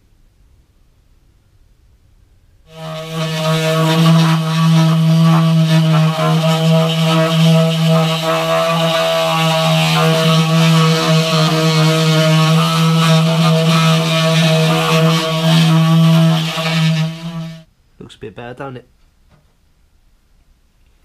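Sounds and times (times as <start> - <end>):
angle grinder wire brush scrubbing steel: 2.7 - 17.6.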